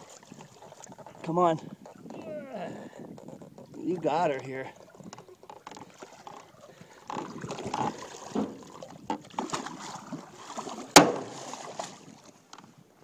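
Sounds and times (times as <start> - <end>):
water splashing from thrashing fish: 3.8 - 12.3
sharp loud knock: 11.0 - 11.3.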